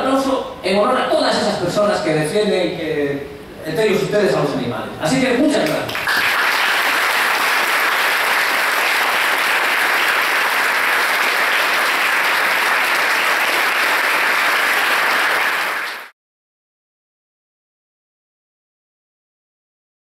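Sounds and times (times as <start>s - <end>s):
audience applauding: 5.6s - 16.1s.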